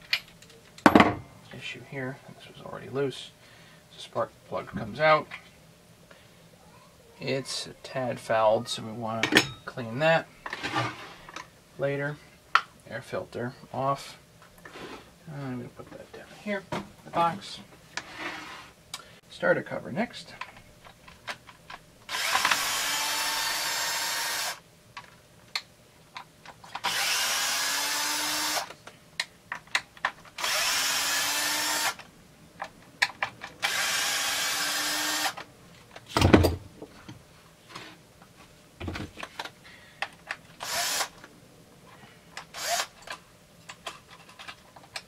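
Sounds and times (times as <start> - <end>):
drill-driver motor whine: 22.1 - 24.6, 26.8 - 28.7, 30.4 - 32.0, 33.6 - 35.4, 40.6 - 41.1, 42.5 - 42.9.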